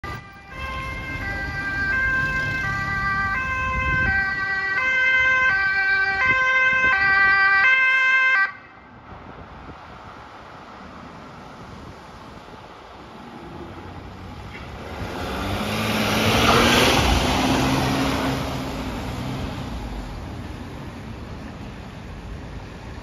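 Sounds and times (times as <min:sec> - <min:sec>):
ambulance two-tone siren: 0:00.0 - 0:08.9
street traffic: 0:00.0 - 0:23.0
engine noise: 0:10.0 - 0:23.0.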